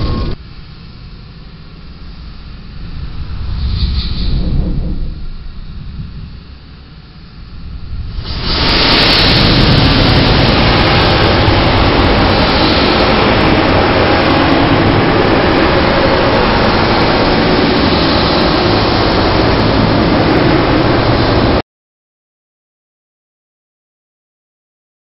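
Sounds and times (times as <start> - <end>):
slowed thunder rumble: 2.8 - 21.6.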